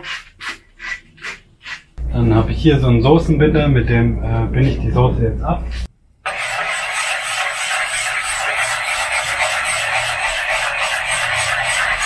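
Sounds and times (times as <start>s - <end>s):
whisk scraping in metal pot: 0.0s - 2.0s, 5.7s - 12.0s.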